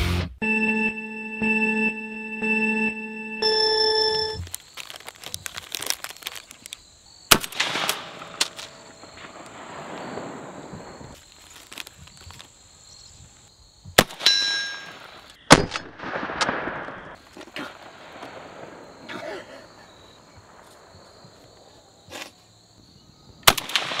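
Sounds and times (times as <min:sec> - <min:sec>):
rifle shots with echo: 0:07.3 - 0:11.1, 0:14.0 - 0:17.2, 0:23.4 - 0:24.0.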